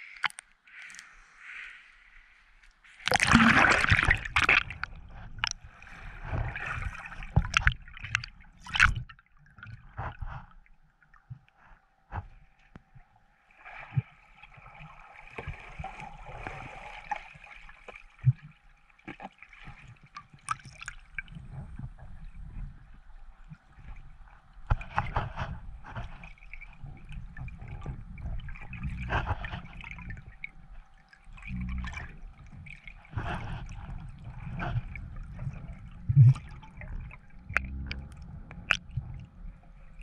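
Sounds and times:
water rushing and bubbles: 2.9s - 10.7s, 13.5s - 40.0s
underwater gurgling and bubbling: 3.0s - 9.1s, 24.7s - 40.0s.

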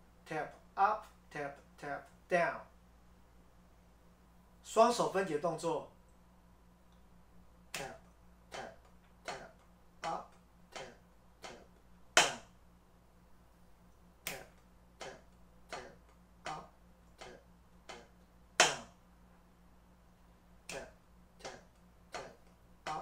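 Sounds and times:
drumsticks tapping a practice pad: 8.6s - 12.5s, 14.3s - 19.0s, 20.7s - 23.0s.

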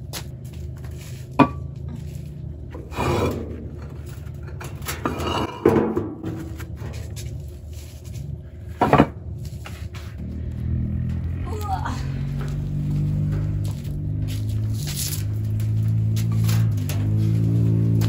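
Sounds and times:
concrete scraping on concrete: 0.8s - 10.2s.

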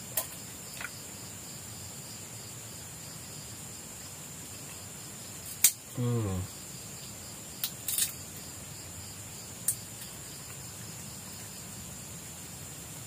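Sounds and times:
crickets trilling: 0.0s - 13.0s
shellfish shell cracking: 7.6s - 8.2s.

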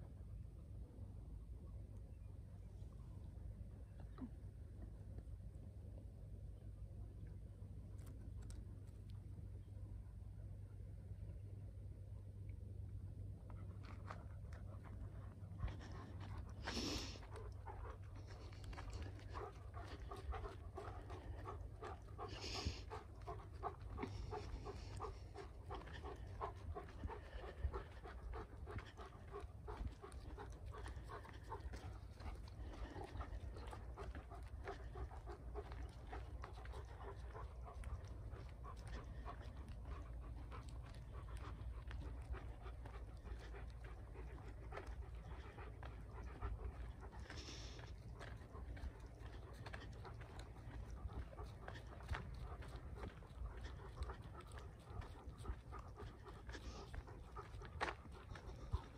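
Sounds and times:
low rumble: 0.0s - 58.9s
dog panting: 13.4s - 58.9s.

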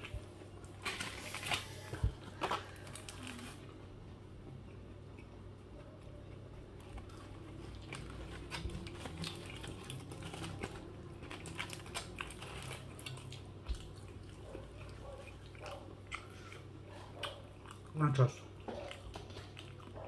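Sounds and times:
steady low hum: 0.0s - 20.0s
foil wrapper crinkling: 0.7s - 3.6s, 7.5s - 13.4s
chewing with wet clicks: 4.7s - 20.0s.

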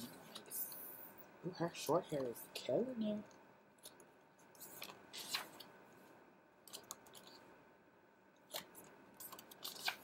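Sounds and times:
book pages flipping: 3.8s - 7.5s, 8.4s - 10.0s.

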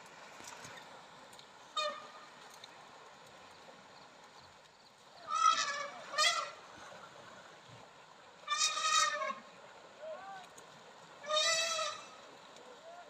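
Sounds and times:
elephants trumpeting: 11.2s - 12.0s.

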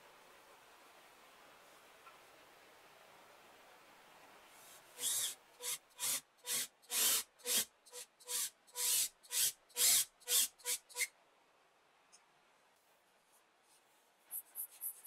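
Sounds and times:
power drill boring into plywood: 5.0s - 11.1s.

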